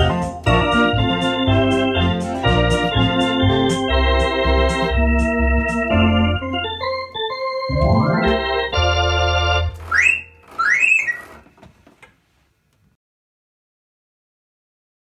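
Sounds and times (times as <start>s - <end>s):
electronic organ playing upbeat tune: 0.0s - 11.4s.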